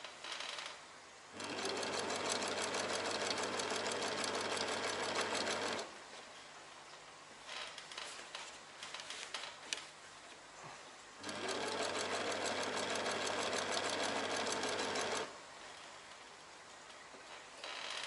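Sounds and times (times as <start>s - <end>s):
sewing machine stitching: 1.4s - 5.9s, 11.2s - 15.4s.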